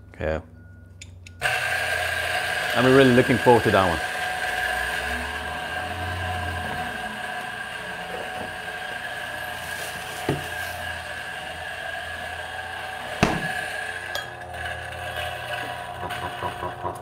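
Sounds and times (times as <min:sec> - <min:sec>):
hard objects knocking: 0:10.2 - 0:10.5, 0:13.2 - 0:13.6.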